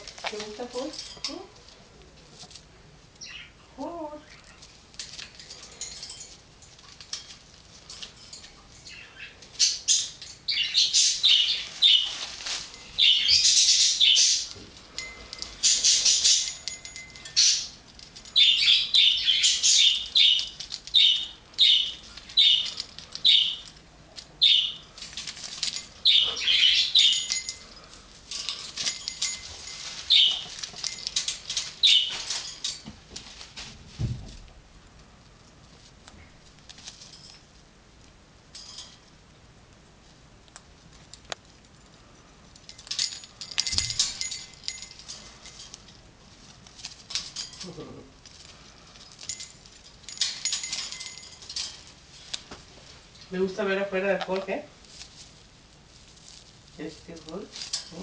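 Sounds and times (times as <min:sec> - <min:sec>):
bird chirping: 0:03.2 - 0:04.7, 0:08.8 - 0:23.8, 0:24.4 - 0:25.0, 0:25.7 - 0:27.9, 0:28.5 - 0:32.3.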